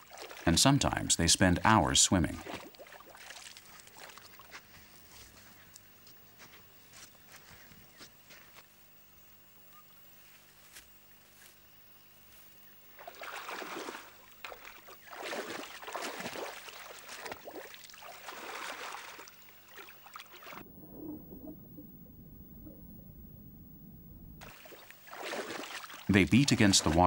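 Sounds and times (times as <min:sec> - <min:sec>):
water splashing: 0:00.0 - 0:05.0, 0:12.9 - 0:27.0
muffled underwater sound: 0:20.6 - 0:24.4.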